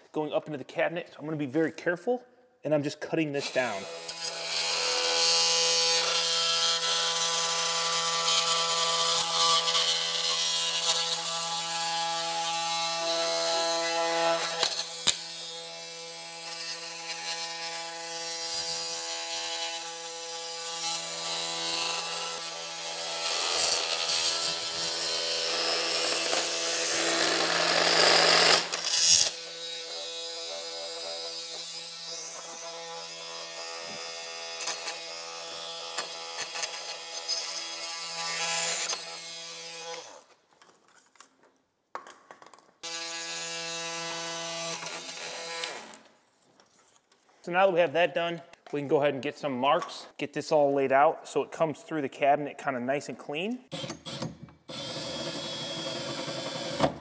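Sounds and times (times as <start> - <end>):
oscillating multi-tool buzzing: 3.8 - 40.2, 42.8 - 46.0.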